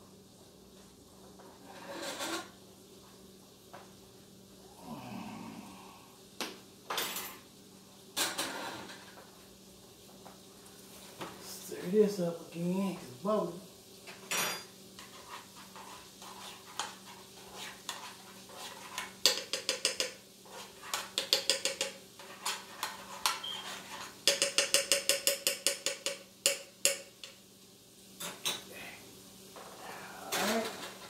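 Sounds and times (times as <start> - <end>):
faint steady hum: 0.0 - 31.0
fork tapping a frying pan: 19.0 - 20.2, 20.9 - 22.0, 24.2 - 27.4.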